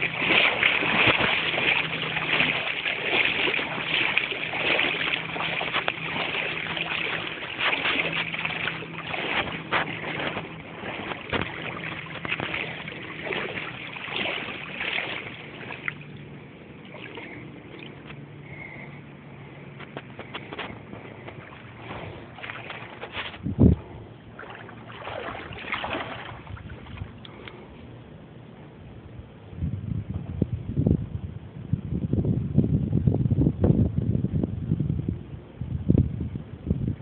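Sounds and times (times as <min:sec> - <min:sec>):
wind buffeting microphone: 0:00.0 - 0:16.0, 0:19.9 - 0:27.3, 0:29.1 - 0:37.0
rushing floodwater: 0:00.0 - 0:18.2, 0:20.0 - 0:23.4, 0:24.3 - 0:27.2.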